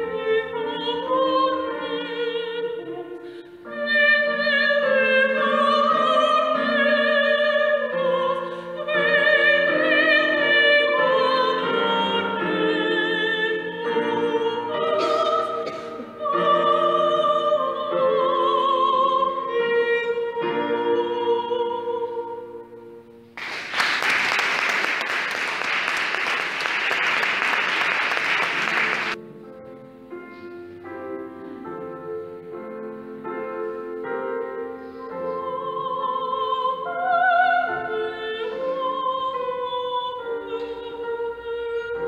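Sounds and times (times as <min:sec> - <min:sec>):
woman singing opera: 0:00.0 - 0:22.8, 0:35.1 - 0:42.0
applause: 0:23.4 - 0:29.2.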